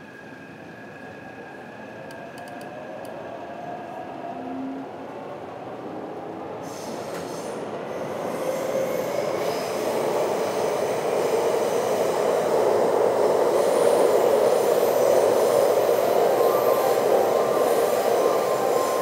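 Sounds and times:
train wheels rumbling on rails: 6.6s - 19.0s.

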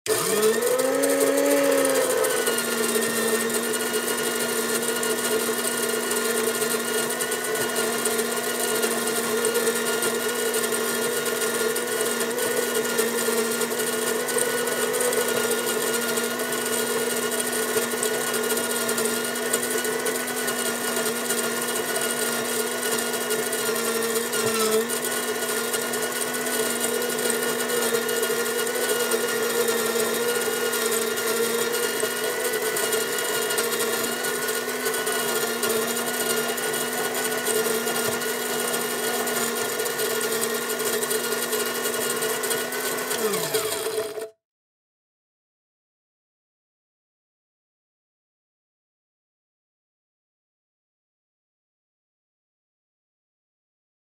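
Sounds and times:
coffee grinder motor whining: 0.1s - 44.4s.

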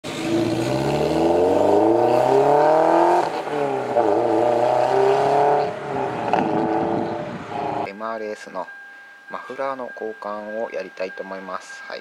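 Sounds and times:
car engine accelerating hard: 0.1s - 7.9s.

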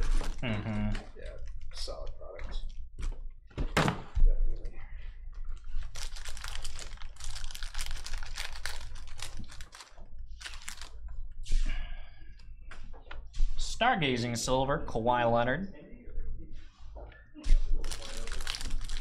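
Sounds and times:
foil wrapper tearing and crinkling: 0.0s - 0.4s, 5.8s - 11.0s, 17.8s - 19.0s.

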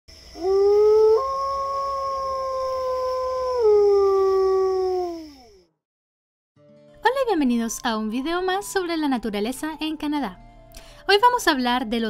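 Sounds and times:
wolf howling: 0.4s - 5.6s.

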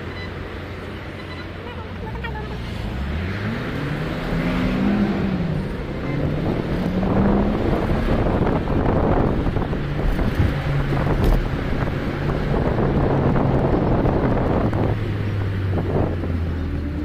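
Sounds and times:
car engine rising and falling: 2.3s - 17.0s
wind on microphone: 6.3s - 16.9s.

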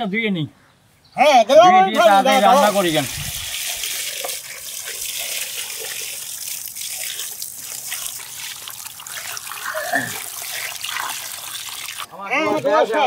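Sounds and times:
water pouring and splashing: 2.0s - 12.1s.

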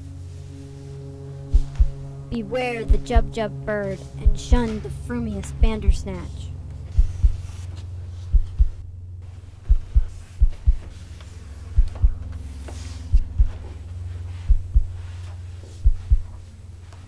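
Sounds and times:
low droning hum: 0.0s - 17.0s
heartbeat thumps: 1.5s - 2.1s, 2.9s - 3.4s, 4.2s - 4.8s, 5.6s - 6.3s, 6.9s - 7.6s, 8.2s - 12.4s, 13.1s - 16.5s.

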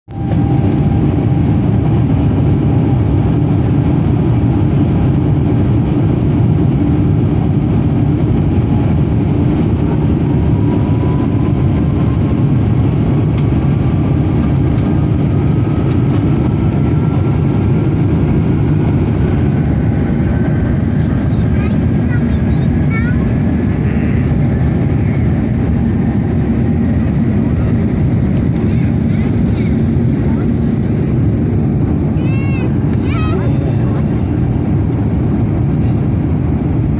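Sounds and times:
jet engine whine rising: 0.1s - 36.9s
jet engines rumbling in cabin: 0.1s - 36.9s.

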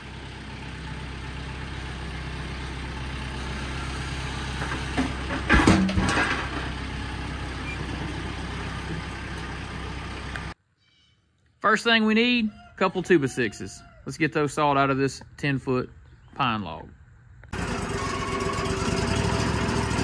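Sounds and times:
tractor engine running: 0.0s - 10.6s, 17.3s - 20.0s
logs thudding onto deck: 4.6s - 6.8s.

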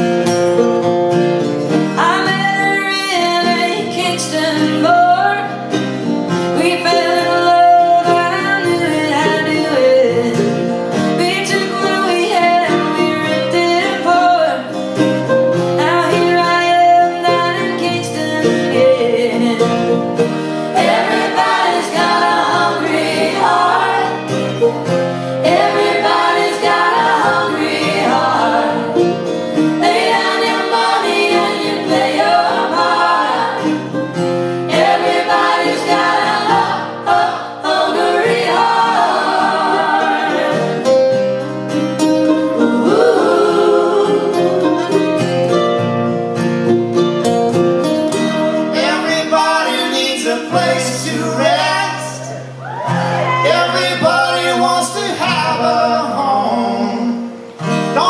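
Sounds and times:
strummed acoustic guitars: 0.0s - 58.0s
group of people singing: 6.6s - 14.6s, 20.6s - 41.4s, 42.4s - 45.2s, 48.7s - 52.5s, 53.3s - 57.4s.

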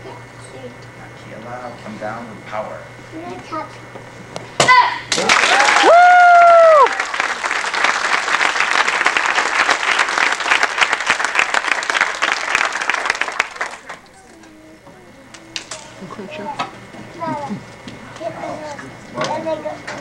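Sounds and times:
audience applauding: 5.1s - 14.0s.

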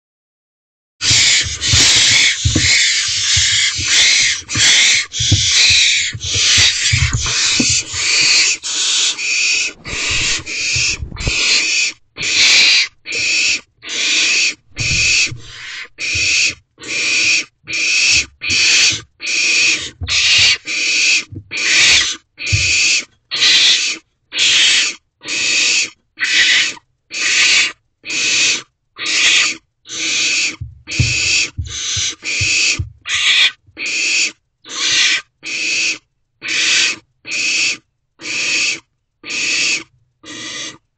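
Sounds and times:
owlets rasping hisses: 1.0s - 13.3s
low thumps: 1.1s - 8.6s, 9.6s - 11.5s, 14.6s - 16.4s, 30.6s - 33.1s.

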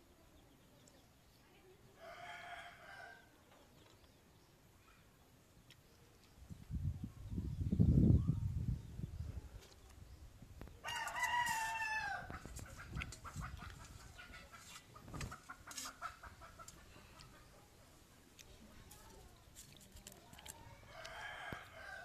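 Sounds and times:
rooster crowing: 10.8s - 12.3s, 20.8s - 22.0s.

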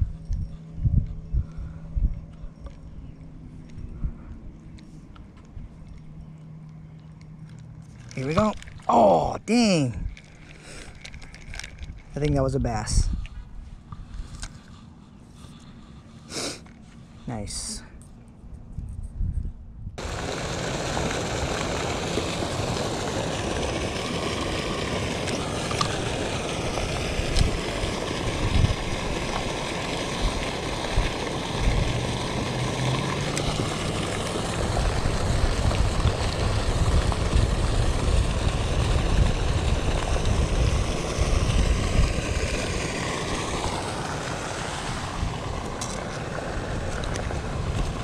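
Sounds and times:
wind rumbling on microphone: 0.0s - 6.3s, 8.0s - 16.1s, 17.1s - 48.0s
fountain water splashing: 20.0s - 48.0s.

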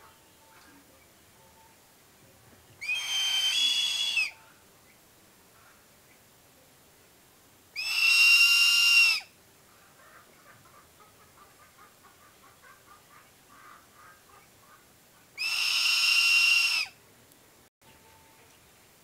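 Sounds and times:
eagle whistling screams: 2.8s - 4.4s, 7.8s - 9.3s, 15.4s - 17.0s.

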